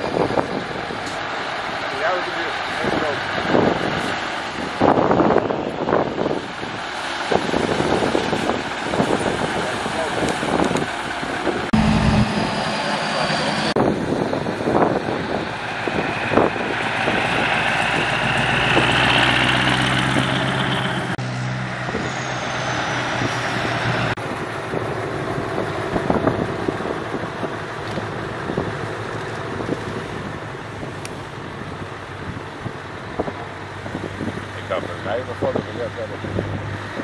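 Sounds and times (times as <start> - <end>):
truck engines driving past: 0.0 - 37.0
rising whine: 7.3 - 34.4.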